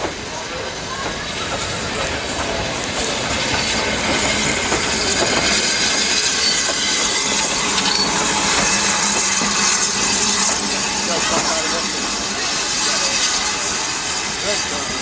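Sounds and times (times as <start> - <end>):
steam hissing: 0.0 - 15.0
train wheels clattering on rails: 0.0 - 15.0.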